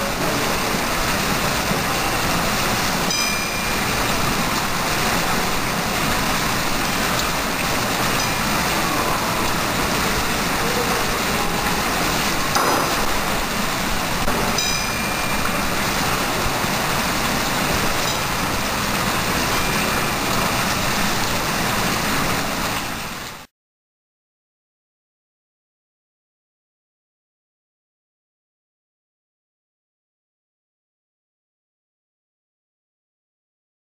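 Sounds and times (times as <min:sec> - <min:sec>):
fountain water splashing into pool: 0:00.0 - 0:23.5.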